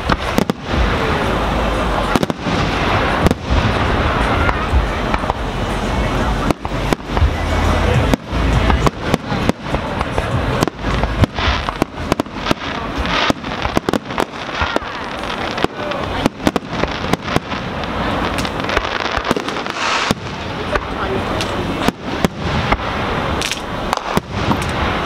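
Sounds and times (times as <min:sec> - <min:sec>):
deep rumble: 0:00.0 - 0:25.0
firework shells bursting: 0:06.4 - 0:25.0.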